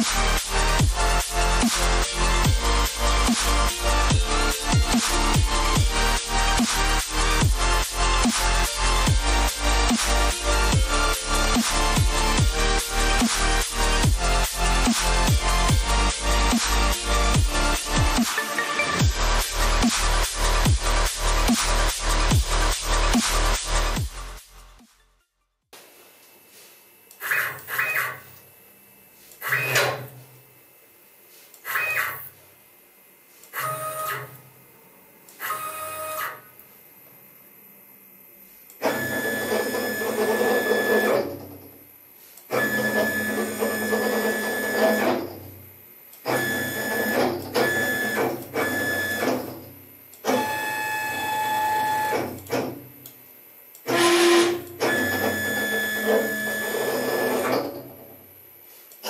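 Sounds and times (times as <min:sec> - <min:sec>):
stepper motors whining: 0:38.8 - 0:41.6, 0:42.5 - 0:45.6, 0:46.2 - 0:52.7, 0:53.7 - 0:58.2.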